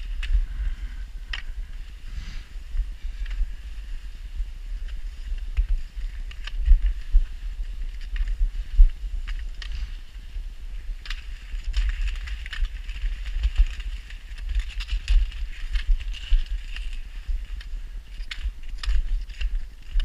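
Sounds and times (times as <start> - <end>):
skis scraping over snow and ice: 0.0 - 20.0
wind rumbling on microphone: 0.0 - 20.0.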